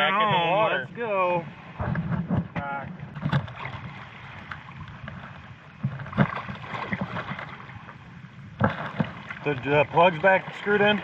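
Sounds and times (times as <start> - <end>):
water splashing and sloshing: 0.0 - 11.0
loud splashes and knocks: 1.7 - 7.9, 8.5 - 11.0.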